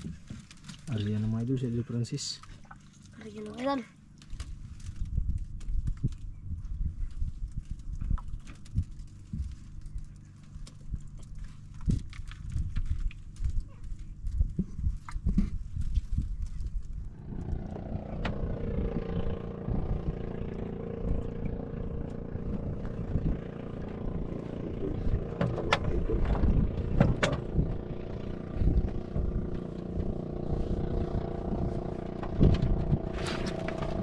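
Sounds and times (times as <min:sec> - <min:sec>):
engine running: 0:07.4 - 0:34.0
sharp clicks and knocks: 0:25.3 - 0:27.9.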